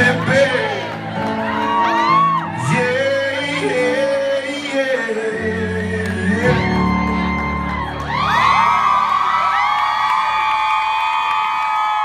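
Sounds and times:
man singing into microphone: 0:00.0 - 0:01.3, 0:01.9 - 0:07.5
live country band: 0:00.0 - 0:10.6.

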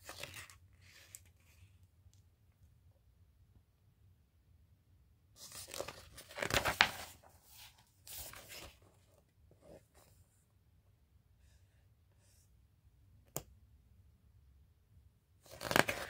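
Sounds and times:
paper pages turning: 0:00.0 - 0:01.7, 0:05.4 - 0:08.9, 0:15.4 - 0:16.0.

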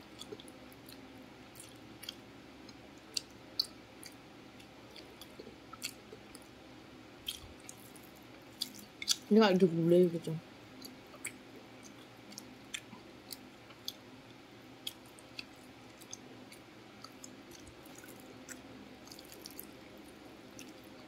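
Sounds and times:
wet eating sounds: 0:07.2 - 0:09.3, 0:10.7 - 0:14.0, 0:14.8 - 0:21.0.

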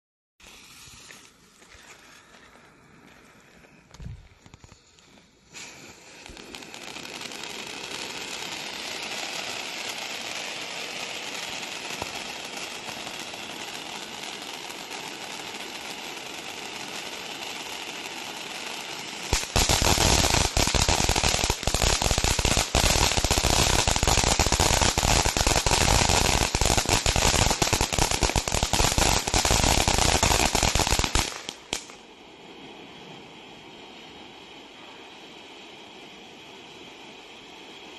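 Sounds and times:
firework crackling: 0:00.4 - 0:02.4, 0:03.0 - 0:37.9
firework fountain hissing: 0:00.4 - 0:02.4, 0:04.4 - 0:37.9.

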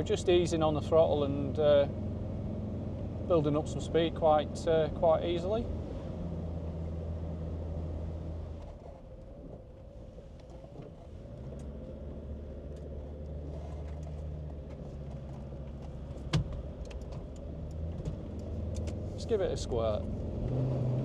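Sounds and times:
diesel engine in car cabin: 0:00.0 - 0:21.0
road and tyre noise: 0:00.0 - 0:21.0.

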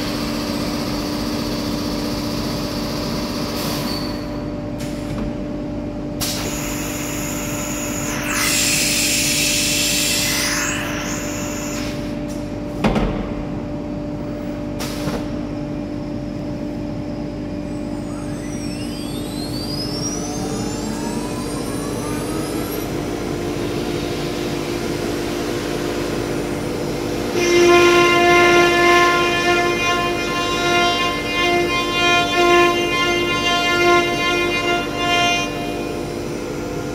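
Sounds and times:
cnc router whining: 0:06.4 - 0:12.7, 0:17.0 - 0:36.9
gliding tones rising and falling: 0:18.3 - 0:23.6.

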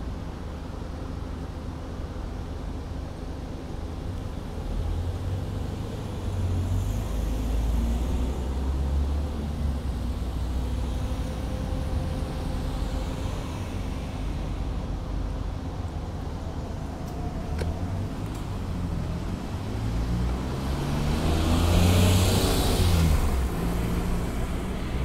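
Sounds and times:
traffic rumble: 0:00.0 - 0:25.0
cars driving past: 0:16.7 - 0:25.0.

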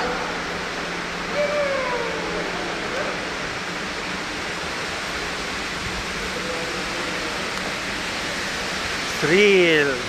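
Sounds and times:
rushing flowing water: 0:00.0 - 0:10.0.

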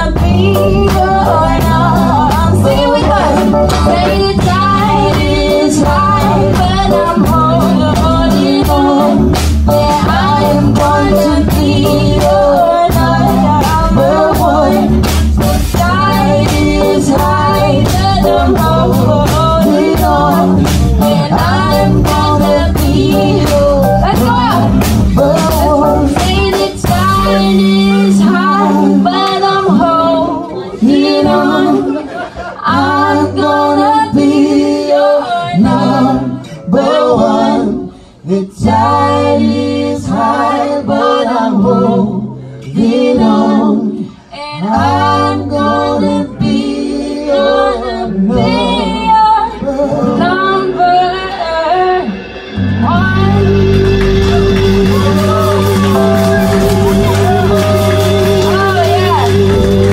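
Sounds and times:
woman singing: 0:00.0 - 0:52.2, 0:52.8 - 0:59.9
reggae band playing: 0:00.0 - 0:59.9.

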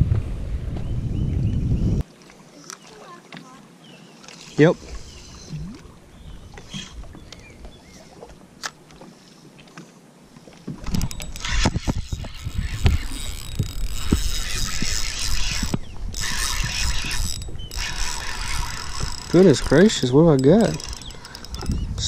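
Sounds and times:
fishing reel whirring and clicking: 0:10.8 - 0:22.0.

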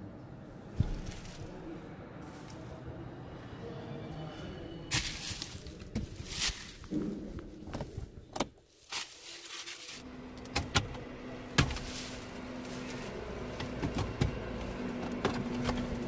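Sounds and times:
plastic glove box clicks: 0:10.4 - 0:11.0.

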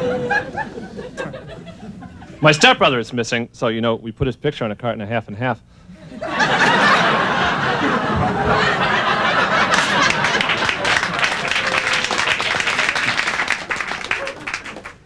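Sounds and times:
audience laughing: 0:00.0 - 0:02.4, 0:06.0 - 0:15.0
audience applause: 0:07.1 - 0:15.0.

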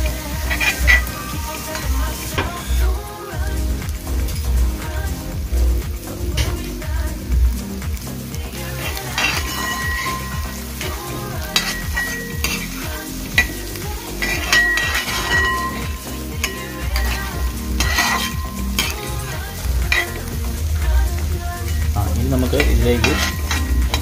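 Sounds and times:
food sizzling in hot oil: 0:00.0 - 0:24.0
spoon scraping a metal pot: 0:14.2 - 0:19.0.

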